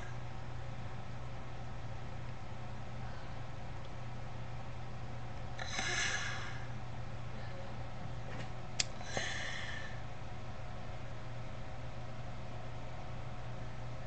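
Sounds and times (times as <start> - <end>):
steady hiss and low hum: 0.0 - 14.0
breathing out through nose: 5.6 - 6.7, 9.0 - 10.0.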